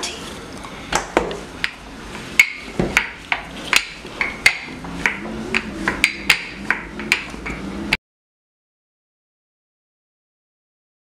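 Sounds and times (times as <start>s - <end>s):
rolling pin knocking on countertop: 2.4s - 7.6s.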